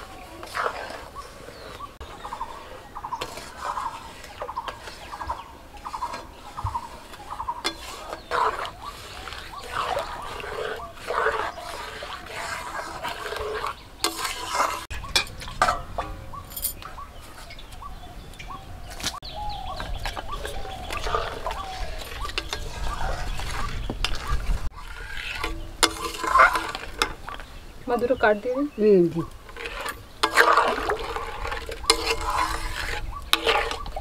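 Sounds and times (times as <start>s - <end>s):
spatula scraping metal pan: 0.0s - 16.3s, 19.8s - 28.6s, 29.2s - 34.0s
metal clinks: 16.5s - 16.8s.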